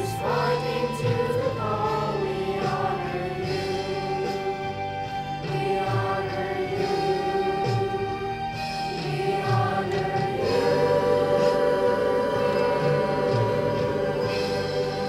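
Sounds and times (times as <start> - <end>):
choir singing long notes: 0.0 - 15.0.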